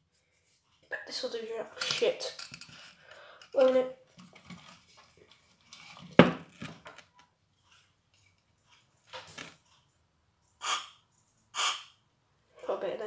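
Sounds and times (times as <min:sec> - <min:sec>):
aerosol spray hissing: 0:10.6 - 0:10.9, 0:11.6 - 0:11.9.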